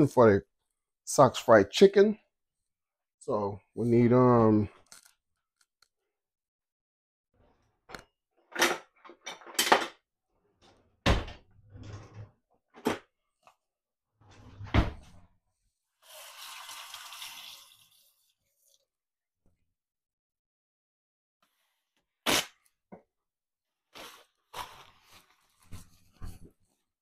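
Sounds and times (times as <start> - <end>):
kitchen tap running: 16.0 - 18.2.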